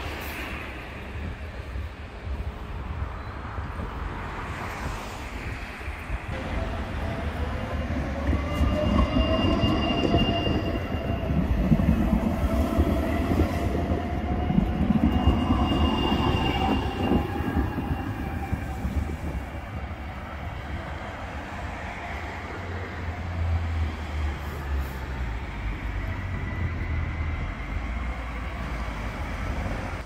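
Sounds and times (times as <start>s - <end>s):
tram rumbling with electric whine: 6.3s - 24.1s
high wheel squeal: 8.1s - 11.8s, 13.7s - 18.9s.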